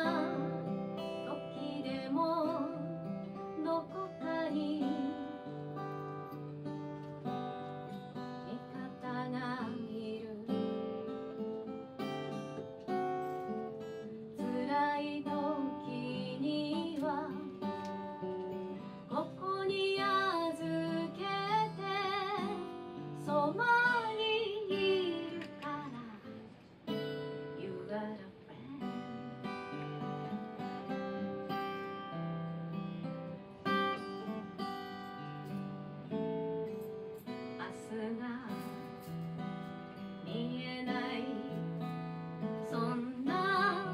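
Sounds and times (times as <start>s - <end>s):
woman singing with vibrato: 0.0s - 5.5s, 8.5s - 10.7s, 14.4s - 17.7s, 19.1s - 26.4s, 27.5s - 29.7s, 40.3s - 41.6s, 42.6s - 43.9s
acoustic guitar strumming: 0.0s - 43.9s.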